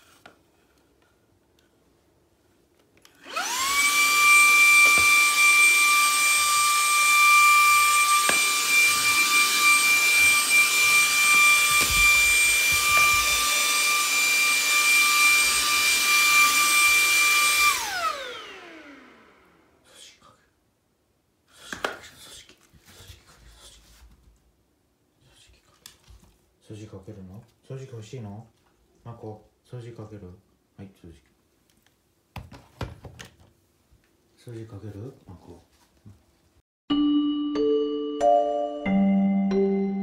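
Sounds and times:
vacuum cleaner whining: 3.1s - 19.8s.

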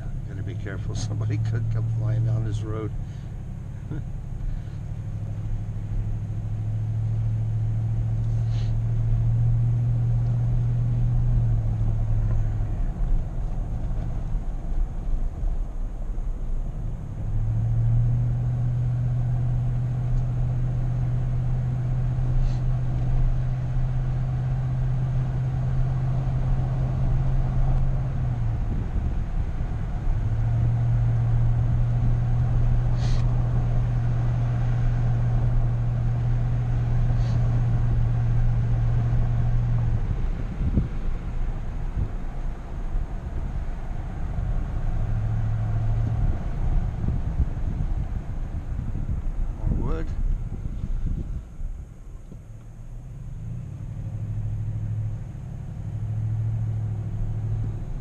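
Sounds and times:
car engine drone: 0.0s - 58.0s.

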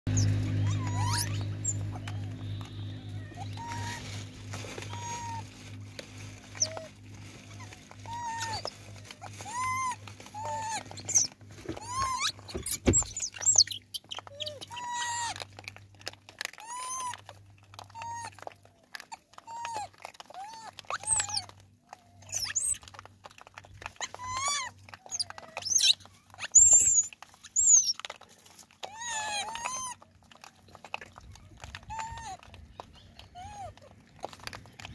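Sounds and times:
monkeys cooing: 0.1s - 4.0s, 4.8s - 5.5s, 7.6s - 15.4s, 16.0s - 23.0s, 23.9s - 28.2s, 28.8s - 34.9s
monkeys squealing: 0.1s - 4.0s, 4.7s - 5.5s, 6.5s - 15.4s, 16.4s - 21.5s, 22.2s - 23.0s, 23.8s - 28.2s, 28.8s - 34.9s.

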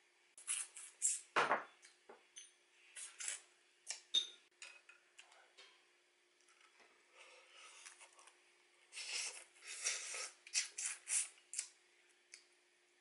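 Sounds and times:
wet sucking and chewing: 0.4s - 1.3s, 7.6s - 11.8s.

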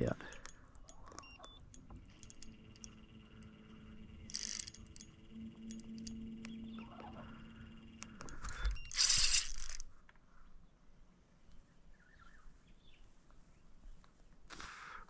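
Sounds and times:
steady hum: 0.0s - 10.0s
fishing reel clicking: 0.2s - 9.9s.

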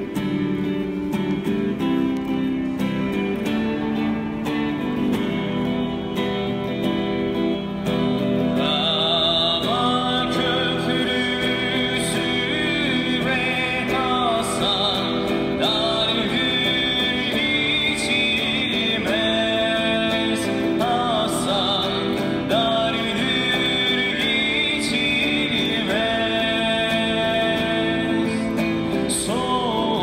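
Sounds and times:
guitar strumming chords: 0.0s - 30.0s
person singing into microphone: 8.2s - 30.0s.

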